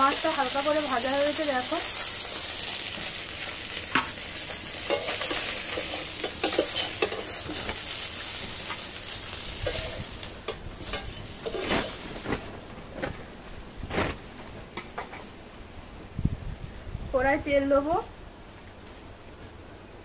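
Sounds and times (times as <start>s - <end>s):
hot oil sizzling: 0.0s - 12.3s
metal spatula scraping a pan: 4.8s - 7.8s, 9.6s - 12.0s.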